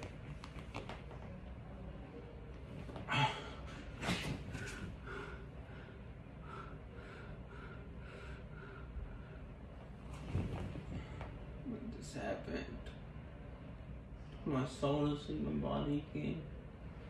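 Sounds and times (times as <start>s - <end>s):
man breathing quickly: 3.1s - 9.7s.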